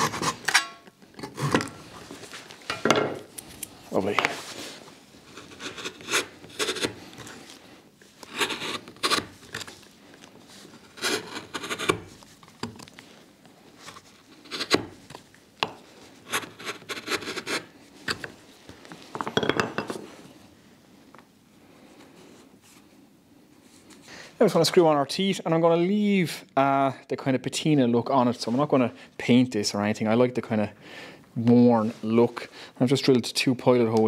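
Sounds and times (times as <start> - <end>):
chisel scraping wood: 5.2 - 7.0, 8.2 - 9.7, 10.8 - 12.1.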